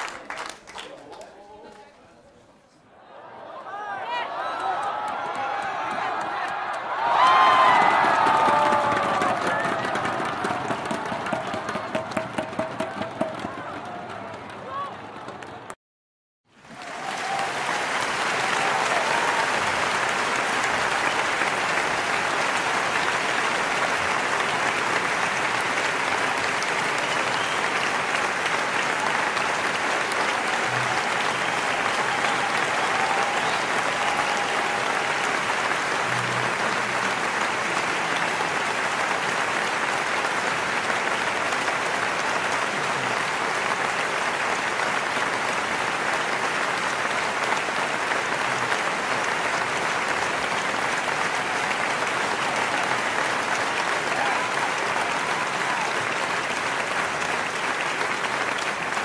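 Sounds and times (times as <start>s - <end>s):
audience applauding: 0.0s - 2.0s, 3.7s - 15.8s, 16.5s - 59.0s.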